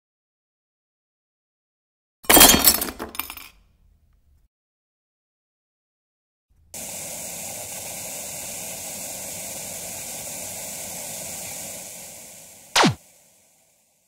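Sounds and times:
television static hiss: 6.8s - 13.6s.

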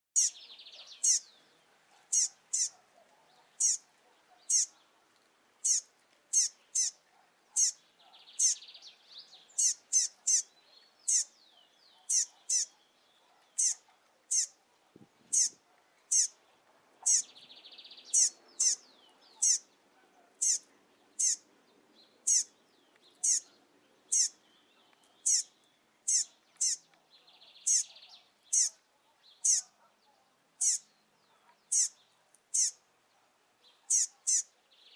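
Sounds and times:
bird calling: 17.0s - 17.4s, 18.1s - 21.4s, 22.2s - 22.6s, 23.2s - 24.4s, 25.2s - 25.5s, 30.6s - 32.8s, 33.9s - 34.5s.

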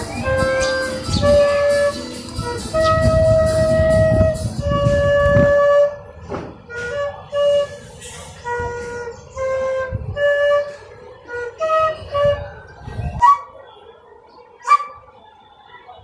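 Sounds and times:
flute playing short notes: 0.0s - 13.7s.

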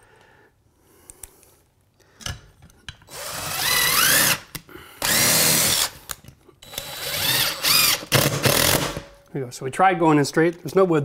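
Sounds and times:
cordless drill motor whining: 3.1s - 4.4s, 5.0s - 6.0s, 6.6s - 8.8s.

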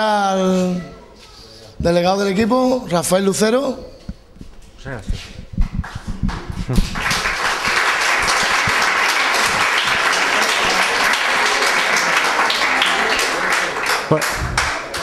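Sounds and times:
audience clapping: 5.8s - 15.0s.

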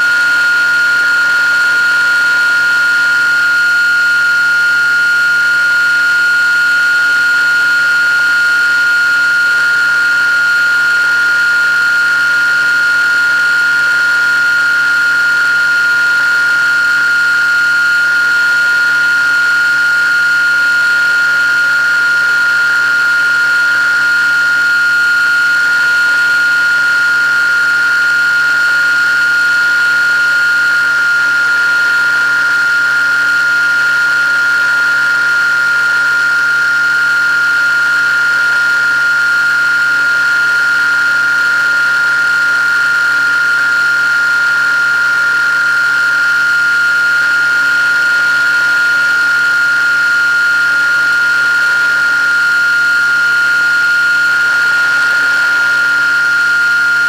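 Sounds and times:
model plane motor whining: 0.0s - 57.0s.

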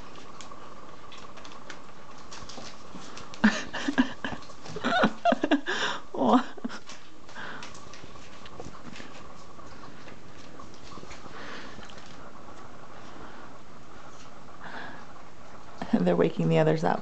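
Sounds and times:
paws scrabbling on newspaper: 0.0s - 5.6s, 6.6s - 13.4s
faint steady hum: 0.0s - 17.0s.

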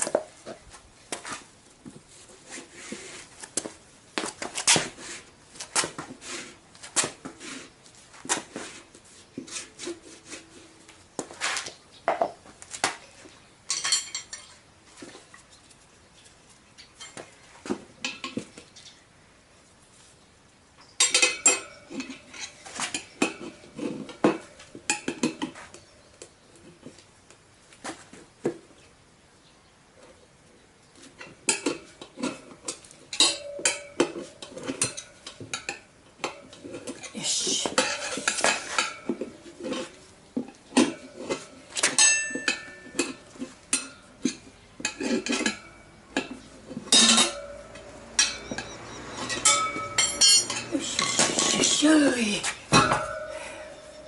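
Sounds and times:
tyre levers clinking on metal rim: 31.2s - 54.0s.

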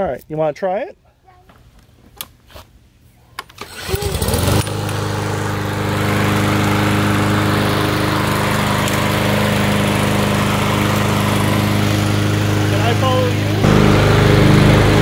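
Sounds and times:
lawn mower engine starting: 3.4s - 15.0s.

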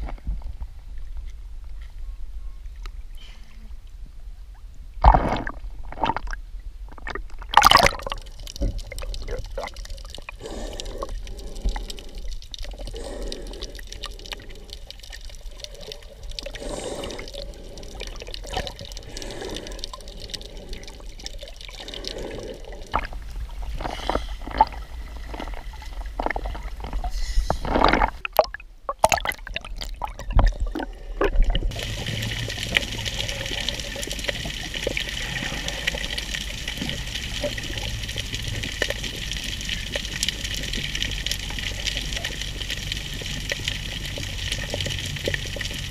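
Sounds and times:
bubbling: 5.0s - 45.9s
water splashing: 5.0s - 45.9s
underwater hiss: 10.4s - 15.1s, 15.7s - 21.2s, 31.7s - 38.6s.

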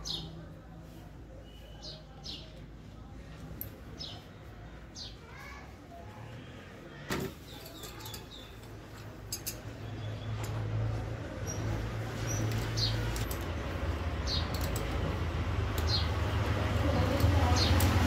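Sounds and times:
metal tools clicking on valve: 9.3s - 9.7s.

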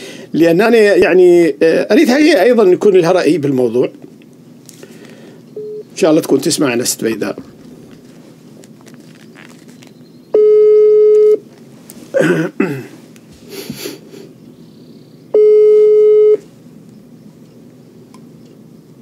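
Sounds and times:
telephone ringback tone: 5.6s - 5.9s, 10.4s - 11.4s, 15.4s - 16.4s.

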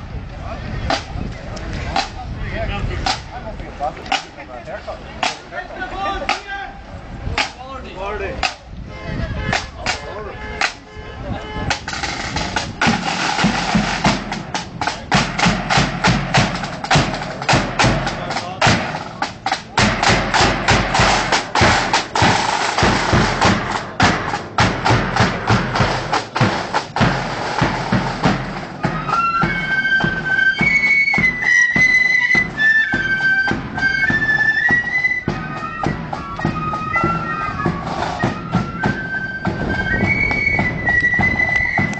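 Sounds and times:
snare drums march rhythm: 1.8s - 2.2s, 3.0s - 3.4s, 4.0s - 4.5s, 5.2s - 6.6s, 7.4s - 7.7s, 8.4s - 8.7s, 9.4s - 10.9s, 11.6s - 41.9s
flutes playing melody: 8.8s - 18.2s, 20.0s - 41.9s.

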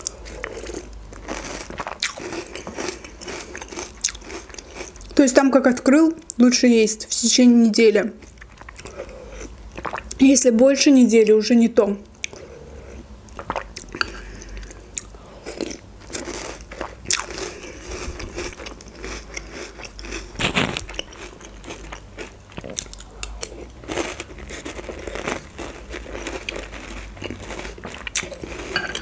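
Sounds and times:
crunching and chewing cereal: 0.0s - 5.4s, 12.2s - 29.0s.

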